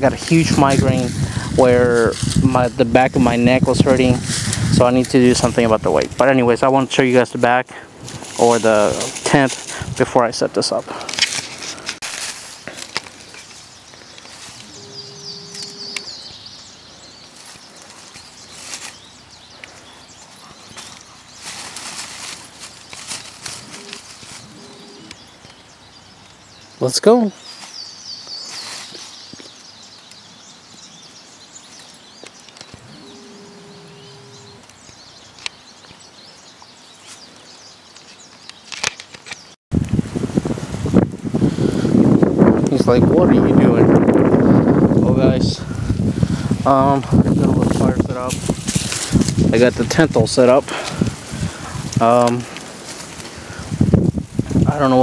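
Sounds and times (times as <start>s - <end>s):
dog's feet crackling in dry leaves: 0.0s - 6.3s, 8.0s - 26.4s, 27.4s - 30.7s, 46.0s - 55.0s
bird chirping: 8.4s - 39.6s
dog stepping through dry leaves: 11.3s - 13.3s, 17.3s - 19.2s, 20.6s - 24.8s.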